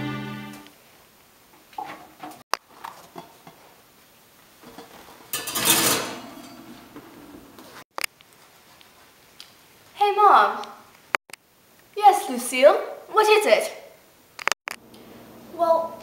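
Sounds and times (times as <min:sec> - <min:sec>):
cookware clattering: 0:01.8 - 0:03.7, 0:04.6 - 0:07.5.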